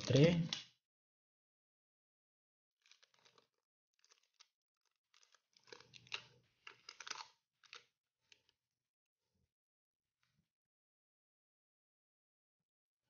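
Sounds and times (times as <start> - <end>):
plastic wrapping crinkling and tearing: 2.8 - 7.9.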